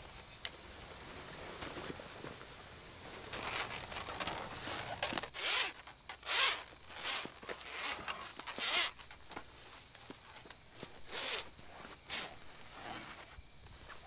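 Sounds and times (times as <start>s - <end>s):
rope rasping through hands: 3.4s - 9.4s, 10.0s - 14.0s.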